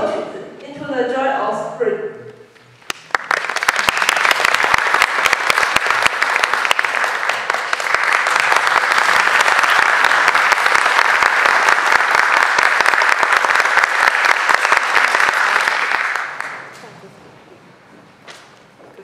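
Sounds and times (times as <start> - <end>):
audience applauding: 2.8 - 17.0.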